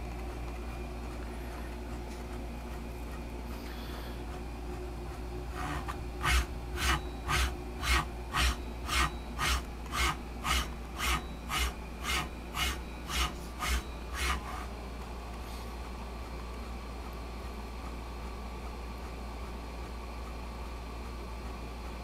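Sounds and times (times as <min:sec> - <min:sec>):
servo motor rasping whir: 0:05.5 - 0:14.7.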